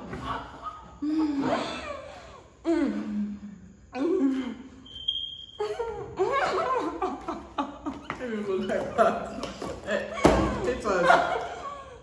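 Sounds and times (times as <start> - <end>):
women laughing: 0.0 - 2.6, 5.6 - 12.0.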